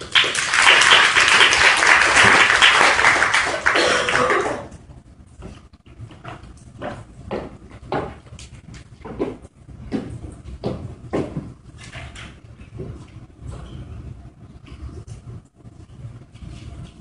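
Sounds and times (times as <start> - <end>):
audience applauding: 0.0 - 4.7
room noises: 0.0 - 17.0.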